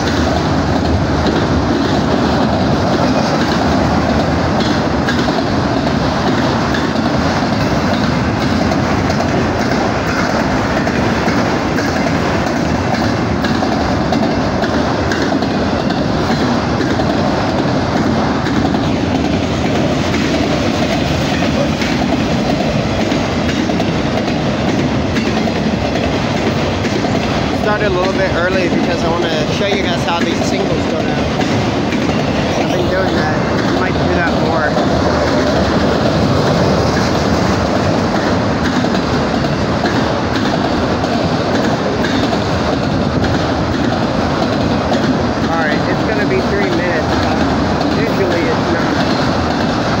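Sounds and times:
freight train wheels rumbling: 0:00.0 - 0:50.0.

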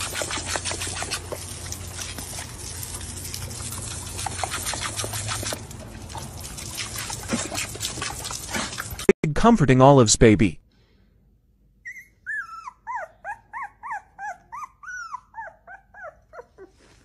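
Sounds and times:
hose nozzle spraying water: 0:00.0 - 0:09.1
water splashing: 0:00.0 - 0:09.1.

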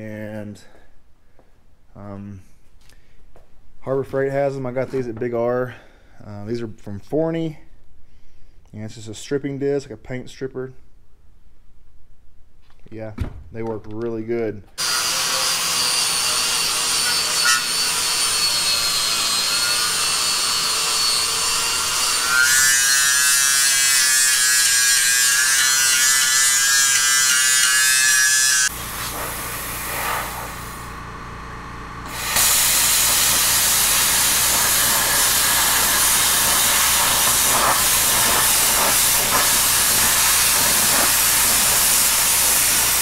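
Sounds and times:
angle grinder grinding metal: 0:14.8 - 0:30.9, 0:32.0 - 0:43.0.

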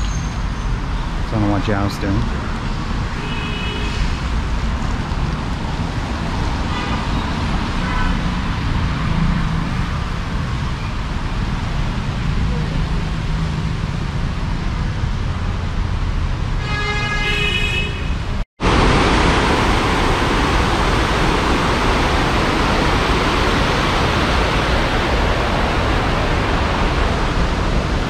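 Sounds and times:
street traffic passing: 0:00.0 - 0:28.0
horn-like tone: 0:16.6 - 0:18.2
steady rushing hiss: 0:18.6 - 0:28.0.

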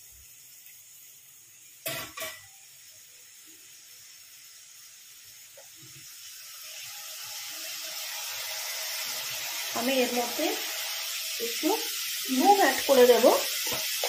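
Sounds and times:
vegetables sizzling in oil: 0:00.0 - 0:14.0.

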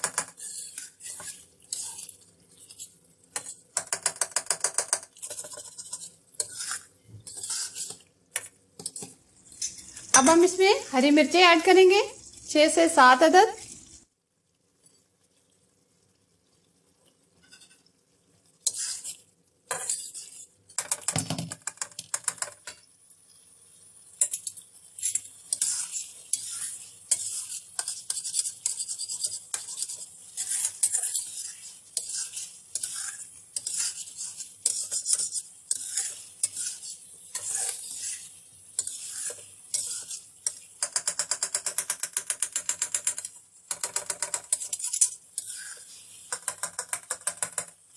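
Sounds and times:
gravy sizzling: 0:00.0 - 0:47.9
metal spatula scraping metal pan: 0:00.1 - 0:08.1, 0:17.4 - 0:17.9, 0:18.6 - 0:21.0, 0:24.2 - 0:41.4, 0:42.8 - 0:46.9.

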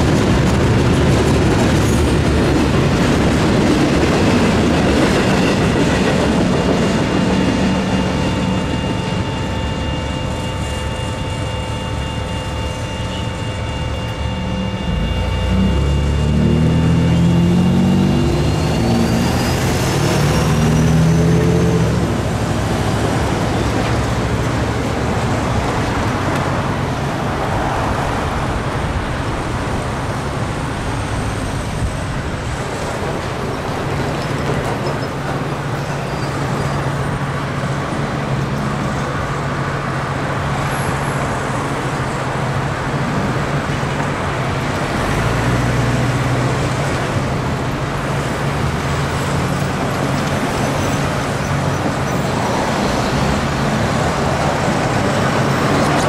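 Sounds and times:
low hum: 0:12.8 - 0:19.9
steel wheels clattering on rails: 0:32.6 - 0:37.4, 0:46.5 - 0:56.0.

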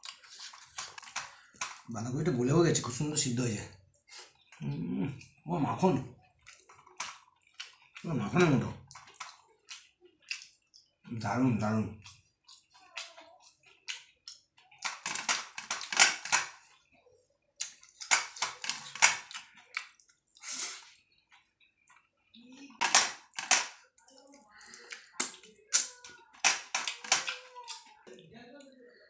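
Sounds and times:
chewing and lip-smacking: 0:00.0 - 0:01.9, 0:06.2 - 0:08.1, 0:08.8 - 0:11.1, 0:12.0 - 0:15.0, 0:16.5 - 0:22.8, 0:23.8 - 0:28.3
wet squishing of food kneaded by hand: 0:03.8 - 0:14.8.

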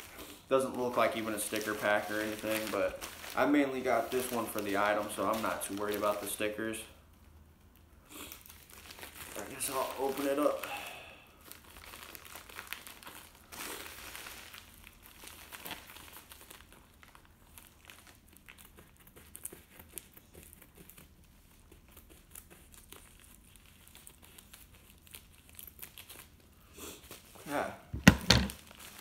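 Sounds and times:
plastic mailer crinkling: 0:00.5 - 0:06.5.

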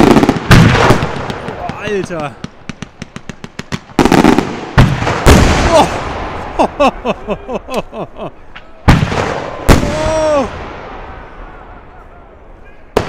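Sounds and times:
firework crackles: 0:00.0 - 0:06.6
firework booms: 0:00.0 - 0:06.7, 0:08.8 - 0:11.8
crowd exclaiming: 0:05.6 - 0:13.0.

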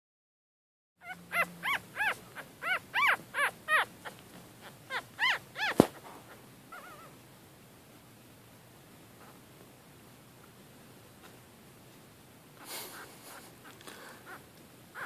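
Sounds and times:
puppies squeaking and whimpering: 0:01.0 - 0:07.2, 0:14.2 - 0:14.4.

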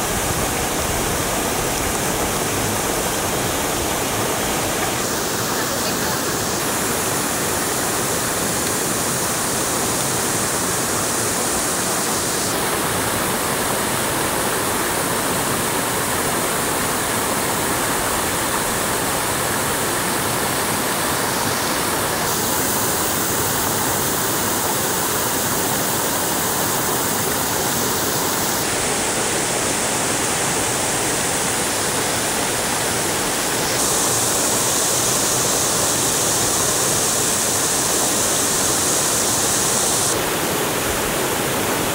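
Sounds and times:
water rushing: 0:00.0 - 0:41.9.

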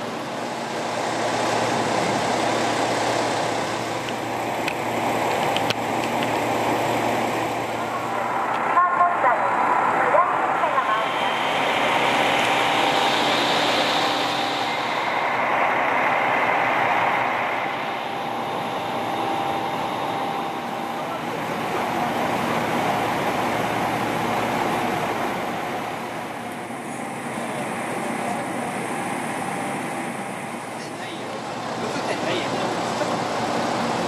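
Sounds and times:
diesel railcar engine rumble: 0:00.0 - 0:34.0.

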